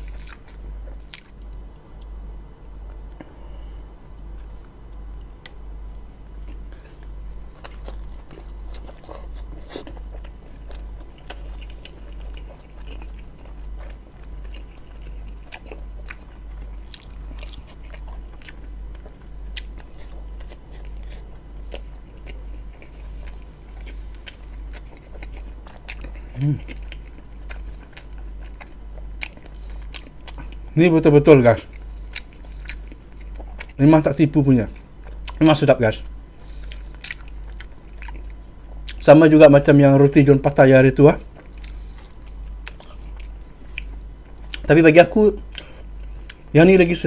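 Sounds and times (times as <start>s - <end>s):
chewing with wet mouth clicks: 0.0s - 2.1s, 6.4s - 30.7s, 31.6s - 33.8s, 34.7s - 35.4s, 36.0s - 39.0s, 41.2s - 44.7s, 45.5s - 46.5s
low hum: 0.0s - 47.0s.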